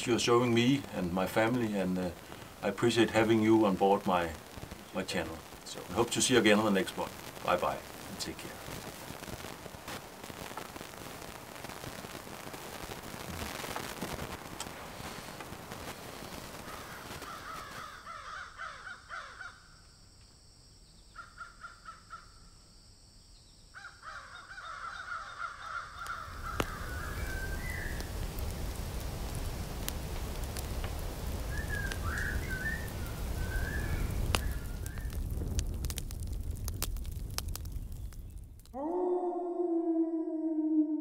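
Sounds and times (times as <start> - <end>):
crows cawing: 16.7 - 19.7, 21.2 - 22.4, 23.8 - 27.2
short bird calls: 31.5 - 35.1.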